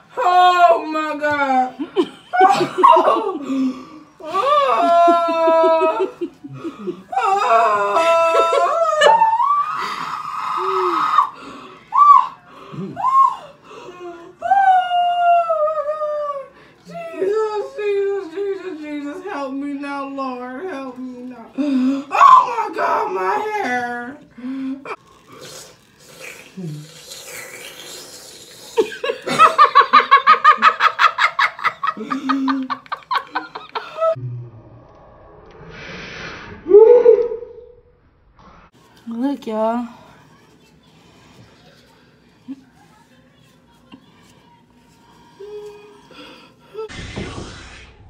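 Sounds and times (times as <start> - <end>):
person laughing hard: 28.8 - 34.2.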